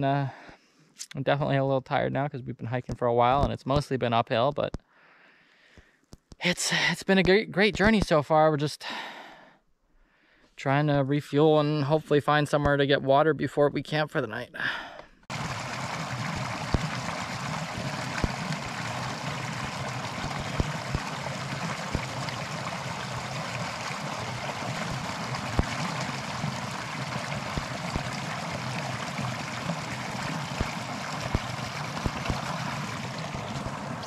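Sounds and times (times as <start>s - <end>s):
creek rushing over rocks: 15.3s - 34.0s.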